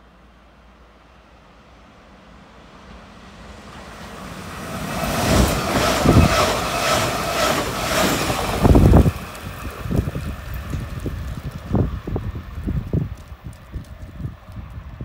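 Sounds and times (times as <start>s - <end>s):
train pulling into platform: 0.0s - 15.0s
wind buffeting microphone: 4.4s - 15.0s.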